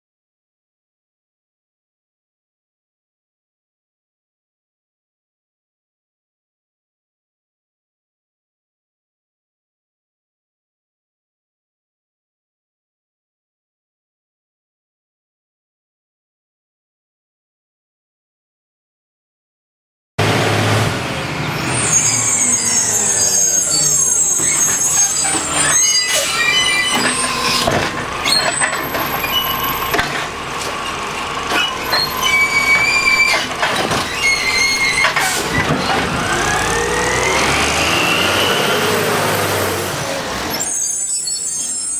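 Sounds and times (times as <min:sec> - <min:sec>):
garbage truck engine: 0:20.2 - 0:41.9
cart dumping bangs: 0:24.2 - 0:40.5.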